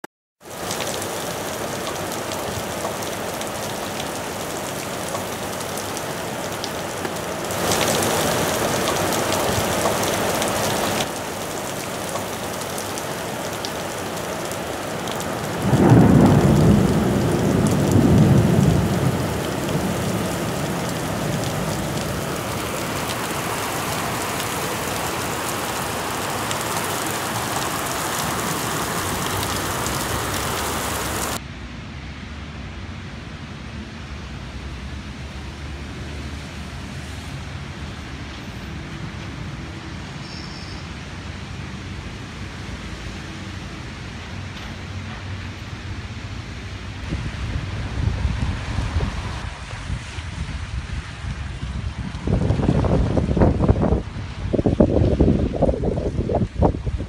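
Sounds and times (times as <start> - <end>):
heavy rain falling: 0.4 - 31.4, 40.8 - 57.0
thunder rumbling: 15.2 - 31.4.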